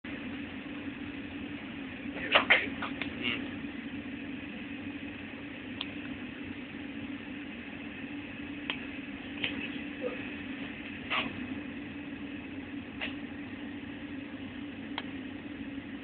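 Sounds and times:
furnace humming: 0.0 - 16.0.

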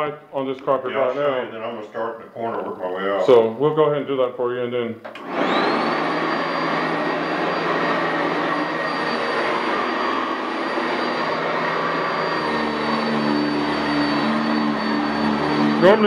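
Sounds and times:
vacuum cleaner motor whine: 5.1 - 16.0.

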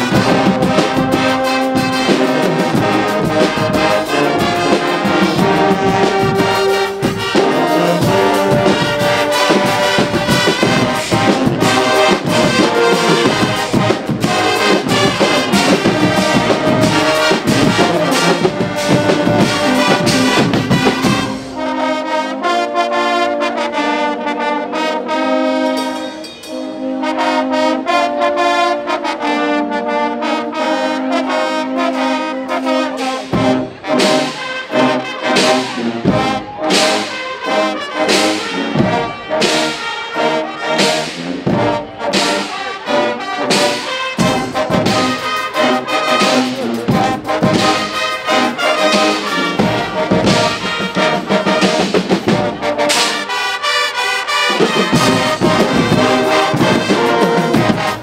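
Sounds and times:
low drums beating: 0.0 - 21.6, 44.2 - 52.8, 54.7 - 58.0
trumpets and trombones: 0.0 - 58.0.

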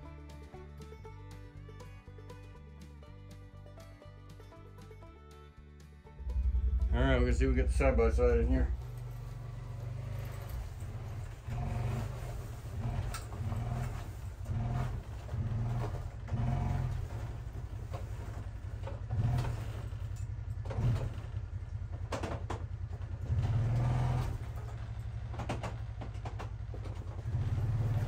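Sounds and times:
engine running with throttle surges: 6.1 - 28.0.

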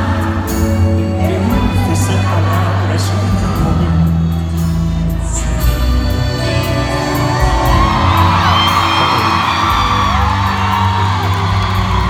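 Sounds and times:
live pop band and singer: 0.0 - 12.0
crowd whooping: 7.5 - 12.0.

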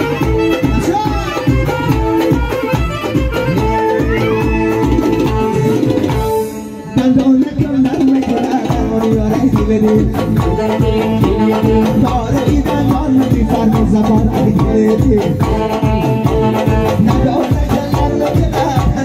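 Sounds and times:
flute melody: 0.0 - 7.5, 10.2 - 19.0
steady drum beat: 0.0 - 19.0.

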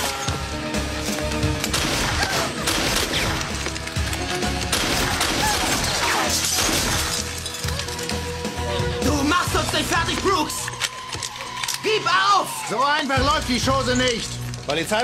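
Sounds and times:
action fight music: 0.0 - 7.4.

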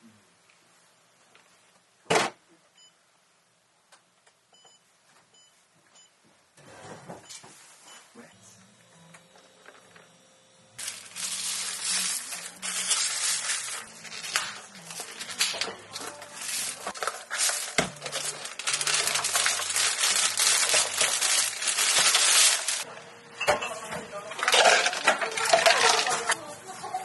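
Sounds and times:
plastic bags crinkling: 10.8 - 22.9, 24.3 - 26.4.

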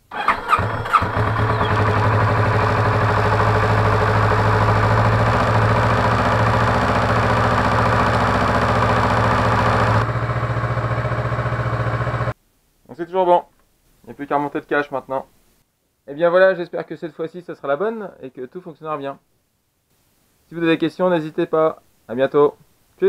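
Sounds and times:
motorcycle engine starting and idling: 0.0 - 12.4.

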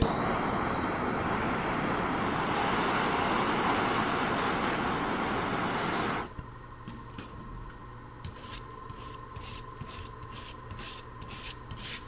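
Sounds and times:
gas torch flame hissing: 0.0 - 6.4.

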